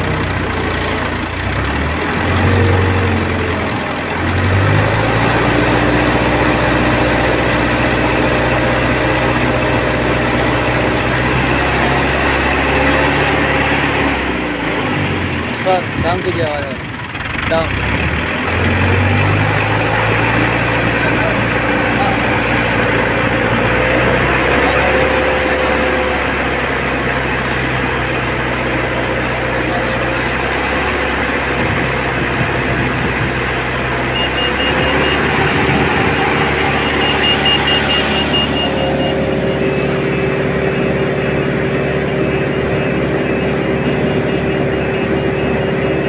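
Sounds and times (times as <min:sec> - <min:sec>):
diesel engine running: 0:00.0 - 0:46.0
rapid high-pitched electronic beeping: 0:34.0 - 0:46.0.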